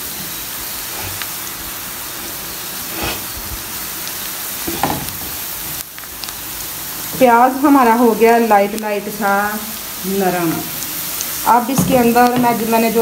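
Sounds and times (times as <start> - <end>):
onions sizzling in a frying pan: 0.0 - 13.0
wooden spatula scraping a pan: 2.9 - 3.4.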